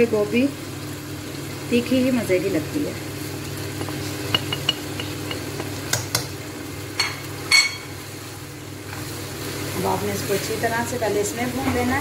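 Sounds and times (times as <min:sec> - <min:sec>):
spoon clinking on plate: 0:07.0 - 0:08.0.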